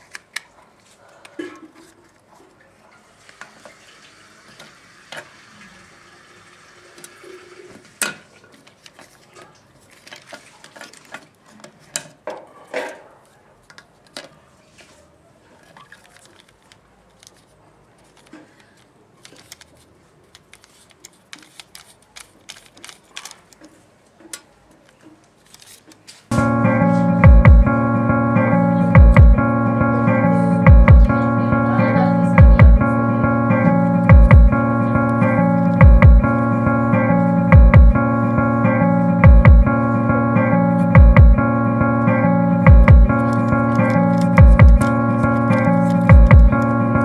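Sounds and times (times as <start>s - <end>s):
plastic toy parts clicking: 15.7s - 26.2s.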